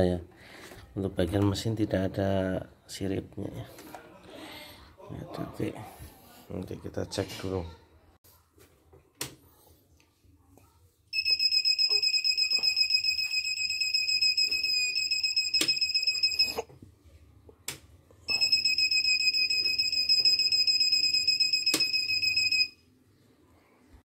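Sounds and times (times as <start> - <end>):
machine buzzer beeping rapidly: 11.2 - 16.6, 18.3 - 22.8.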